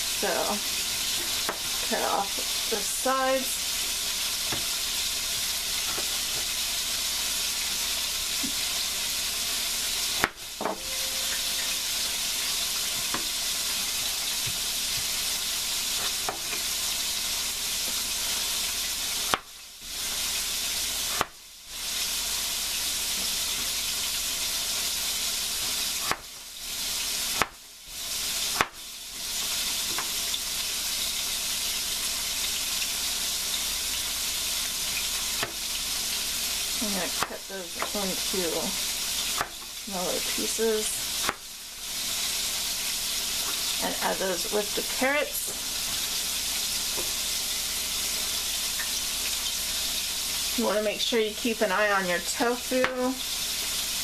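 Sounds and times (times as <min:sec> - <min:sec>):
tofu sizzling in hot oil: 0:00.0 - 0:54.0
knife tapping cutting board: 0:10.2 - 0:11.1.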